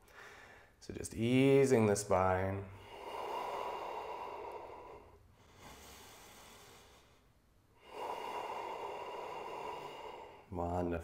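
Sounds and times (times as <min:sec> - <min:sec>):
man breathing slowly: 0:00.0 - 0:00.8, 0:02.6 - 0:10.6.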